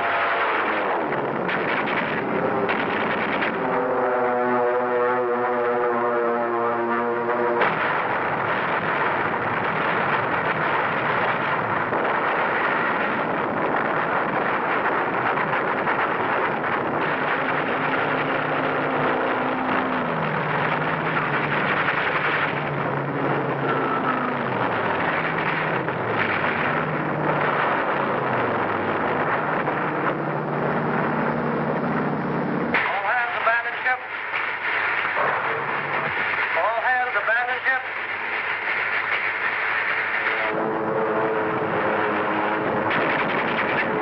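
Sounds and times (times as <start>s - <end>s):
explosion blasts: 0.0s - 31.2s, 32.6s - 44.0s
aircraft engines roaring: 0.0s - 44.0s.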